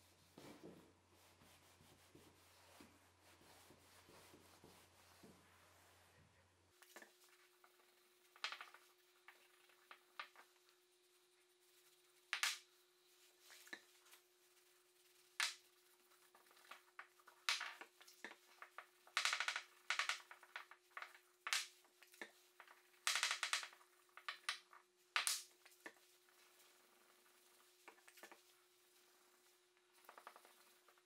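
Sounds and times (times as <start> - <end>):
faint steady hum: 0.0 - 31.0
cloth rubbing on wood: 0.2 - 6.1.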